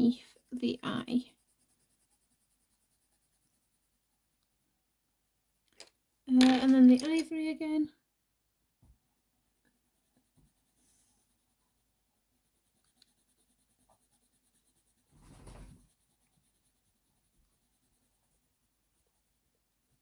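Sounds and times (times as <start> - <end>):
pencil scratching on paper: 0.0 - 4.4, 9.0 - 20.0.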